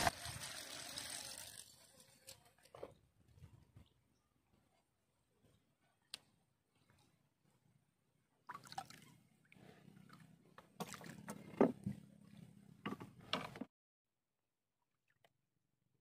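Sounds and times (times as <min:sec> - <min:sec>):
water splashing and sloshing: 0:08.4 - 0:13.2.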